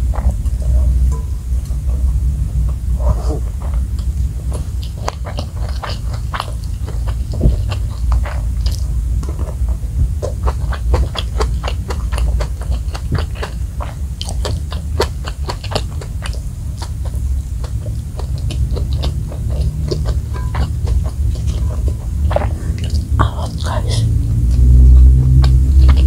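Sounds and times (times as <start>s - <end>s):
steady low rumble: 0.0s - 26.0s
close chewing with mouth clicks: 2.7s - 26.0s.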